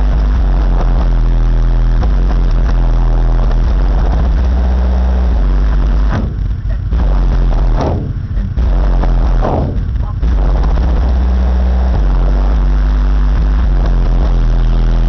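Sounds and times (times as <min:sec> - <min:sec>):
deep subwoofer bass: 0:00.0 - 0:15.0.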